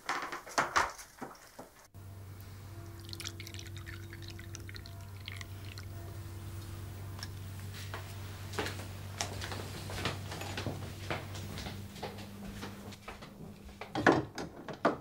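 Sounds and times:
steady low hum: 2.0 - 13.8
coffee pouring into cup: 2.8 - 6.0.

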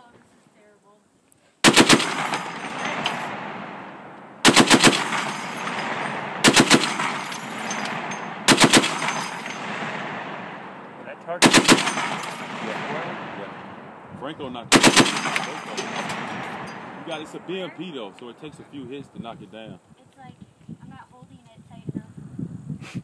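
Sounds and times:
heavy machine gun bursts: 1.6 - 10.8, 11.4 - 13.6, 14.7 - 17.8
long rolling echo: 1.6 - 19.2.

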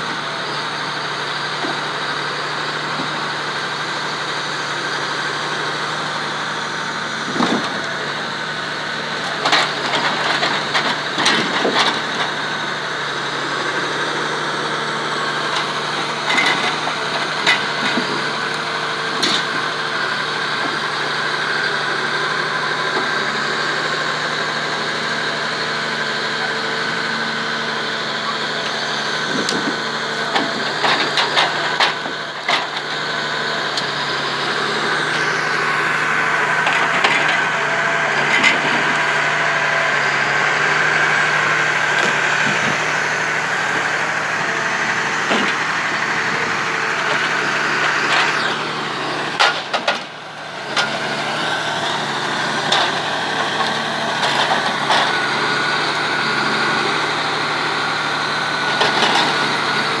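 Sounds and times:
forestry machine engine whining: 0.0 - 60.0
logs knocking together: 45.2 - 45.6.

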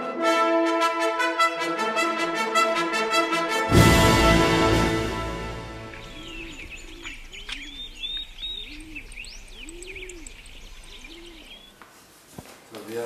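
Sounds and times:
brass fanfare: 0.0 - 6.5
small birds chirping: 5.7 - 11.8
doves cooing: 5.9 - 11.8.

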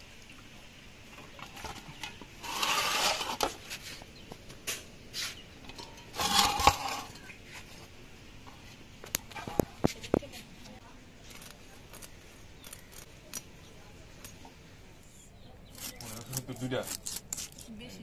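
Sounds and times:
wet fish shifted in metal pan: 1.3 - 3.8, 5.6 - 7.7.

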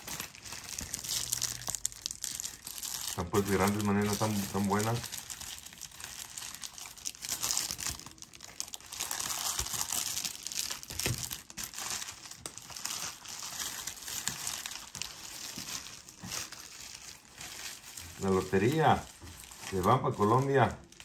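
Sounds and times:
packaging crinkling and rustling: 0.0 - 21.0.

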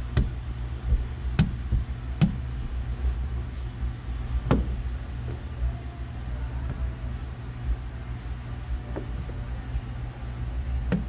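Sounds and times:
steady low hum: 0.0 - 11.0
squeegee knocking on glass: 0.9 - 2.4, 4.5 - 4.8.

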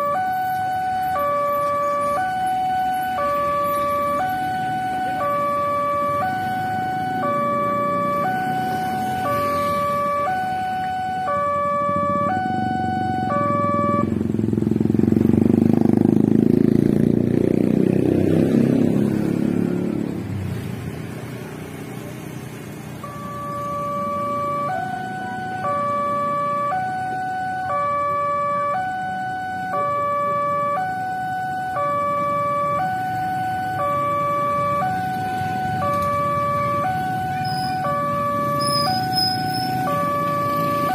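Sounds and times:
two-tone level crossing alarm: 0.0 - 14.2, 23.0 - 40.9
motorcycle engine passing: 12.0 - 22.9.

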